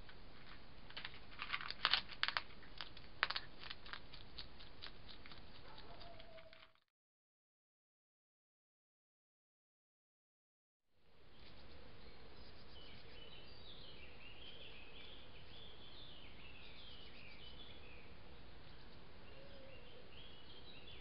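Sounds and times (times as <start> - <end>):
songbirds chirping: 0.0 - 6.6, 11.0 - 21.0.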